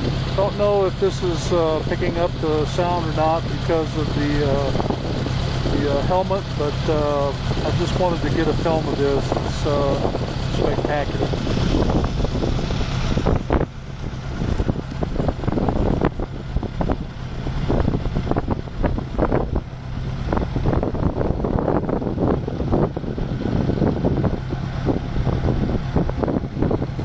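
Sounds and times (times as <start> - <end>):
motorcycle engine running: 0.0 - 27.0
wind buffeting microphone: 0.0 - 27.0.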